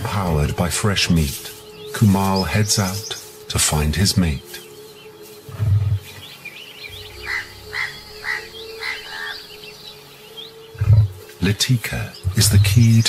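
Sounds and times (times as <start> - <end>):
bird calls: 0.0 - 13.0
high bird chirps: 4.6 - 11.3.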